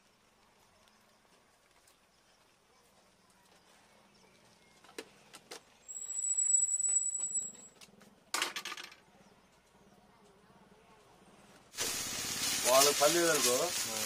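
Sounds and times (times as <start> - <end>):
high steady squeal: 5.9 - 7.7.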